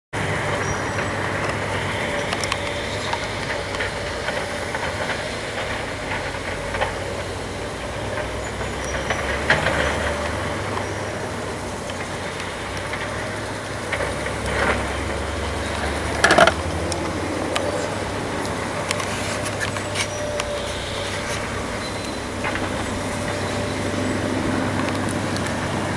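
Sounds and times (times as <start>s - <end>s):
demolition machinery engine rumble: 0.2s - 25.9s
metallic clanks: 16.2s - 16.6s.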